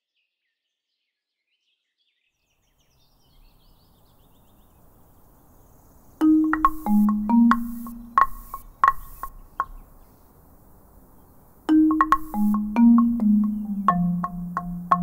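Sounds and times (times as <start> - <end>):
faint bird chirps: 0.0 - 15.0
faint outdoor ambience: 2.4 - 15.0
marimba notes: 6.2 - 9.8, 11.7 - 15.0
wood block taps: 6.2 - 9.8, 11.7 - 15.0.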